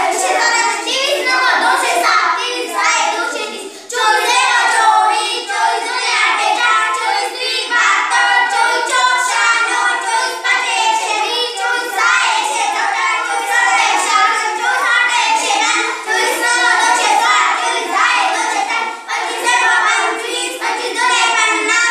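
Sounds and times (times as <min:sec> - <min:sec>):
children chanting in unison: 0:00.0 - 0:21.9.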